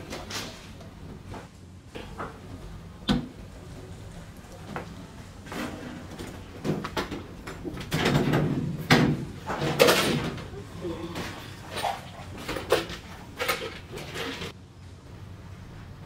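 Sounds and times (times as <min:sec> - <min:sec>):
sheet metal clattering and knocking: 0:06.6 - 0:10.5
metal tub scraping rattle: 0:11.2 - 0:14.6.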